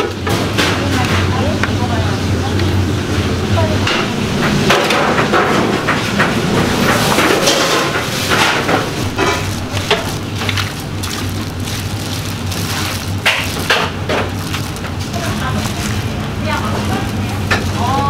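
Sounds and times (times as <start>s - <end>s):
metal trays and utensils clattering: 3.7s - 18.0s.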